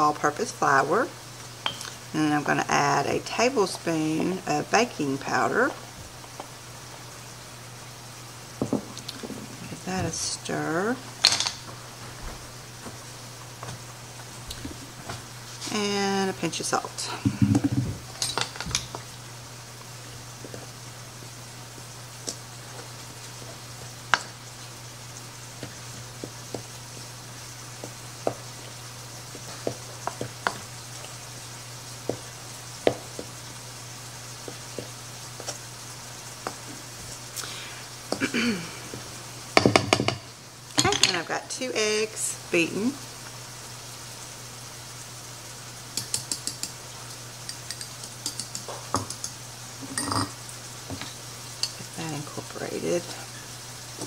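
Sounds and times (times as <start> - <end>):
steady low hum: 0.0 - 45.8
knock on bowl: 8.6 - 9.4, 39.6 - 40.2
wooden spoon clicking against bowl: 46.0 - 46.8, 47.5 - 49.4.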